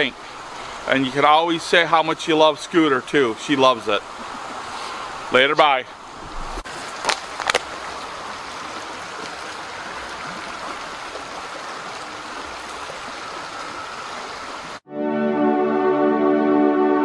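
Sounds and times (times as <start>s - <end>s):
creek water running: 0.0s - 14.8s
ambient synthesizer music: 14.8s - 17.0s.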